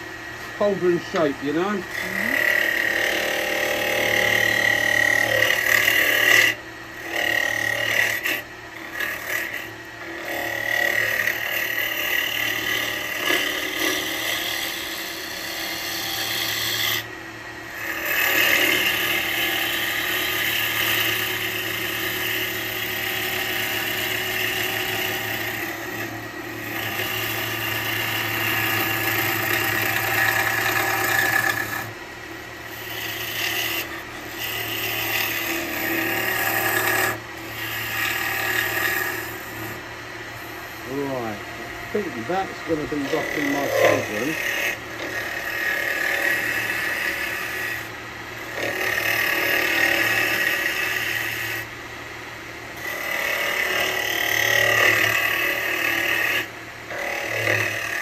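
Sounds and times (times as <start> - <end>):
turning tool scraping wood: 0.0 - 17.0, 17.7 - 31.9, 32.6 - 39.8, 40.4 - 51.7, 52.8 - 58.0
lathe humming: 0.0 - 58.0.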